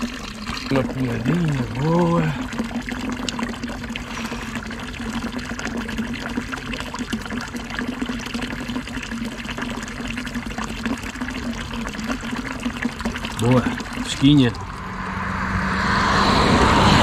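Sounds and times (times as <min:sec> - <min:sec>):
fountain water splashing: 0:00.0 - 0:14.8.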